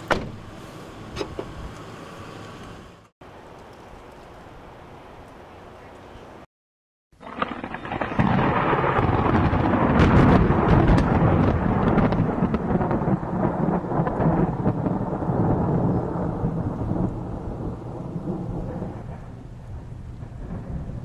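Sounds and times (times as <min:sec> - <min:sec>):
rain: 0:02.4 - 0:06.5, 0:07.2 - 0:21.0
thunder rumbling: 0:07.2 - 0:21.0.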